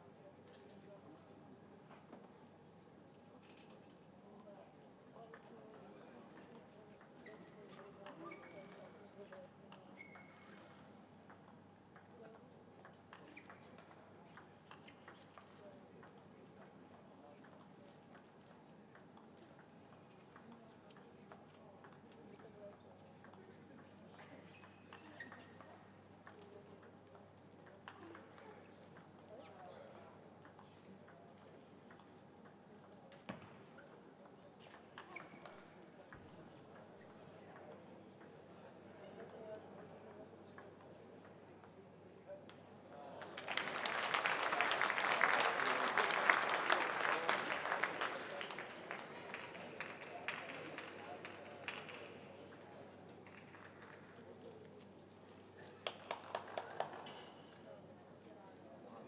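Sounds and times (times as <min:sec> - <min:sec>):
low hall hum: 0:00.0 - 0:59.0
table tennis ball ticks: 0:30.4 - 0:33.4
audience applause: 0:43.2 - 0:51.0.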